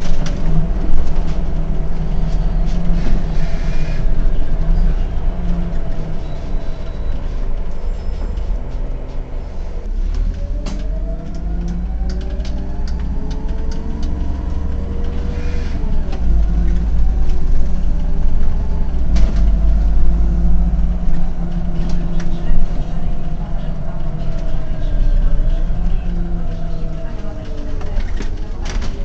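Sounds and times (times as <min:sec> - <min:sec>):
bus engine rumble with whine: 0:00.0 - 0:29.0
cab rattles: 0:10.6 - 0:29.0.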